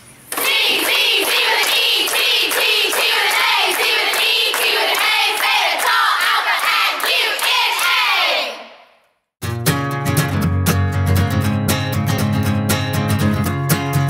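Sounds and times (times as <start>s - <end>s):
rhythmic clapping: 0.3s - 8.3s
young women singing a chant: 0.3s - 8.9s.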